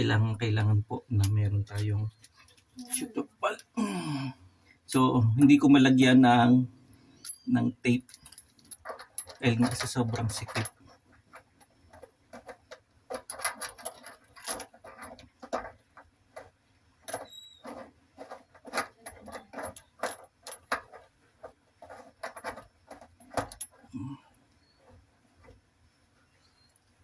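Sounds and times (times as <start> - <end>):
metal nut clicking and scraping: 6.9 - 27.0
high squeak: 17.2 - 17.6.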